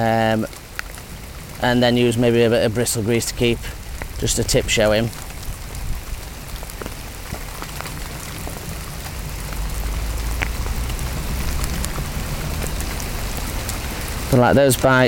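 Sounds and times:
heavy rain on a pond: 0.0 - 15.0
rain pattering on plastic bag: 0.0 - 15.0
low rumble: 8.0 - 14.4.

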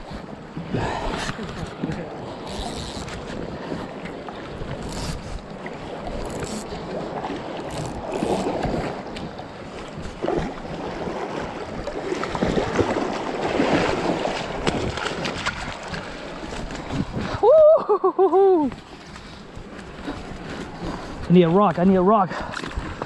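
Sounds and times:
wind buffeting microphone: 0.0 - 17.7
rushing river water: 0.0 - 23.0.

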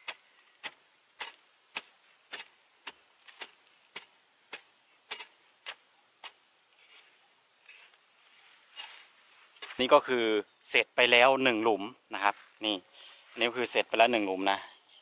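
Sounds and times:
spade chopping into ground: 0.0 - 7.1, 9.6 - 9.9.

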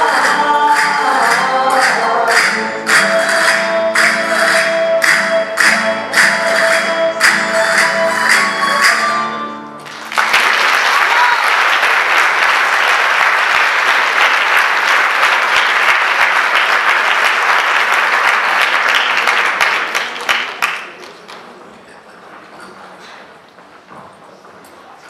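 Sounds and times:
plucked string ensemble: 0.0 - 10.0
audience applause: 9.8 - 21.6.

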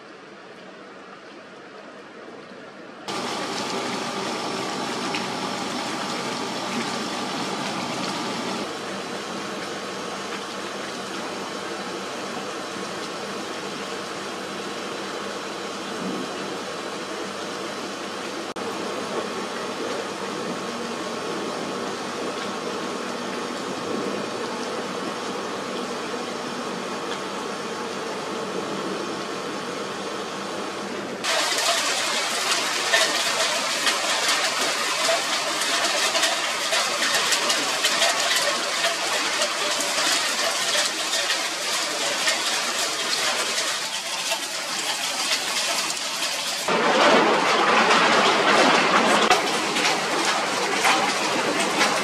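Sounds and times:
hail falling: 3.1 - 8.7, 31.2 - 52.0
heavy rain rushing: 3.1 - 8.9, 31.2 - 52.0.

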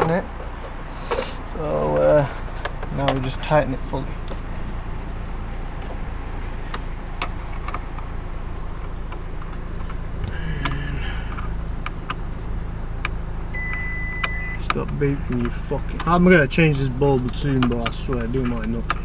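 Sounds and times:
low vehicle rumble: 0.0 - 19.0
electronic warning beep: 13.5 - 14.6.

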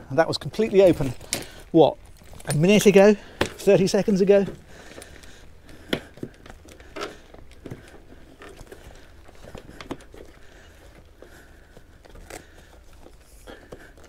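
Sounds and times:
canvas canopy rustling: 0.0 - 14.0
hooks clicking onto metal fasteners: 0.5 - 8.8.

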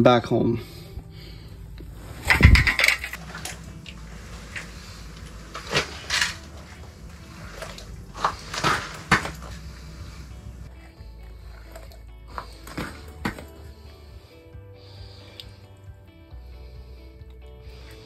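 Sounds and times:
thump and rattle on ice: 2.3 - 10.7, 12.4 - 13.6.

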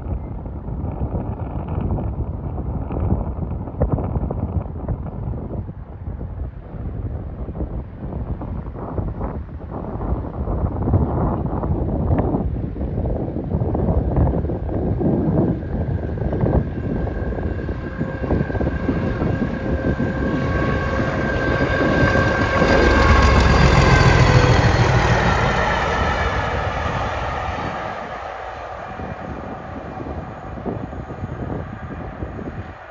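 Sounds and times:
diesel locomotive passing: 14.6 - 32.9.

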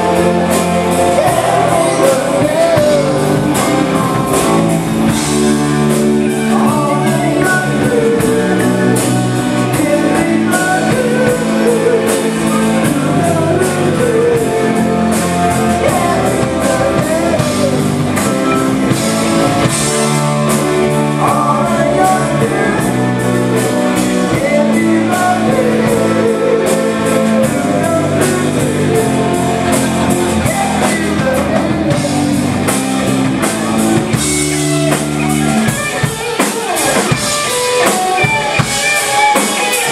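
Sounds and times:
man singing into microphone: 0.0 - 4.7, 6.3 - 18.7, 21.1 - 32.4
drum kit: 0.0 - 39.9
electric guitar: 0.0 - 39.9.

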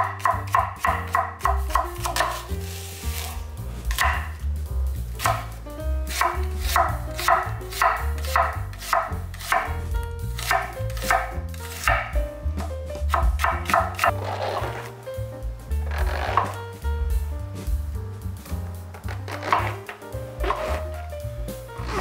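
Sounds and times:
knife chopping on wooden board: 0.0 - 2.5, 3.2 - 4.4, 5.2 - 5.5, 6.1 - 9.8, 10.4 - 12.2, 13.0 - 14.9, 19.2 - 19.8
low background music: 0.0 - 22.0.

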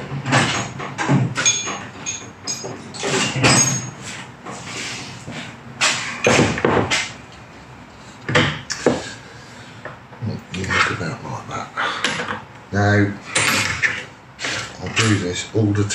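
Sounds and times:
metal hand tools clattering: 1.4 - 4.0
short metallic rings: 1.4 - 4.0.

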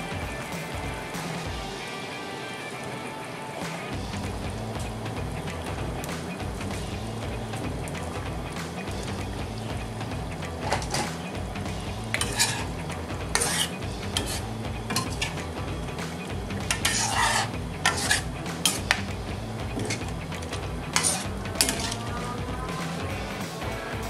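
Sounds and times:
utensil scraping metal pan: 10.6 - 11.2, 12.1 - 15.6, 16.2 - 22.4.

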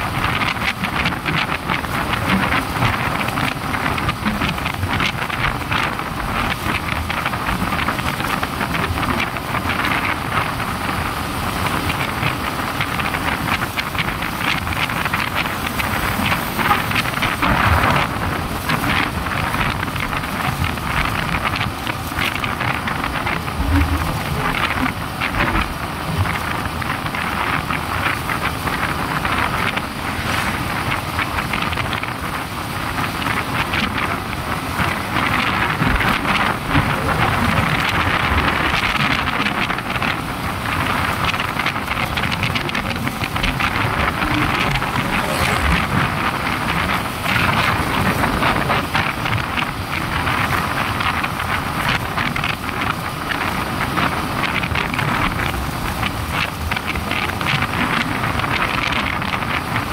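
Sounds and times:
wind rush on microphone: 0.0 - 59.9
motorcycle running: 33.0 - 59.7.

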